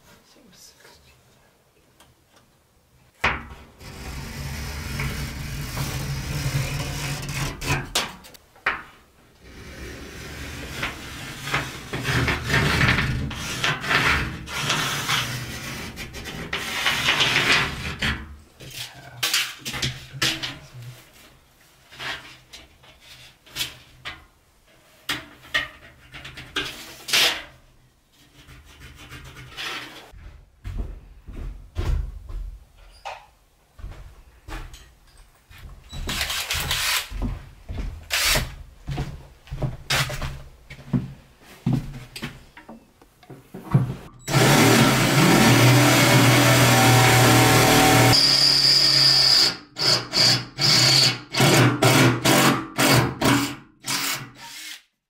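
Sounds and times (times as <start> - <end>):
scraping on corrugated steel: 3.8 - 8.2, 9.5 - 19.6, 28.2 - 30.1.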